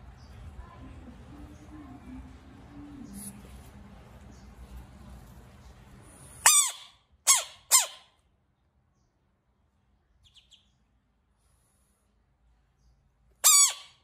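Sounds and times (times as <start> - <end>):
squawking animal calls: 6.4 - 8.2, 13.4 - 14.0
faint high chirps: 10.2 - 10.9.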